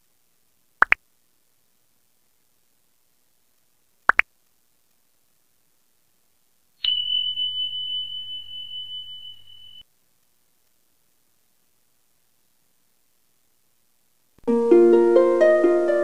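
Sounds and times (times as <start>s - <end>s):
bell ding: 6.8s - 9.8s.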